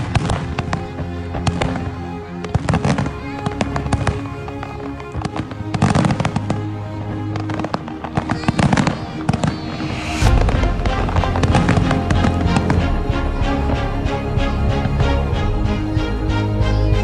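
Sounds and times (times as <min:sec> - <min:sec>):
fireworks popping and banging: 0:00.0 - 0:06.6, 0:07.3 - 0:12.9
music: 0:00.0 - 0:17.0.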